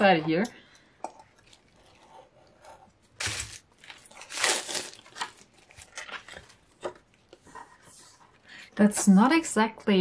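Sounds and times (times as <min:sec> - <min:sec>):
plastic wrapping tearing and crinkling: 0:03.2 - 0:06.7.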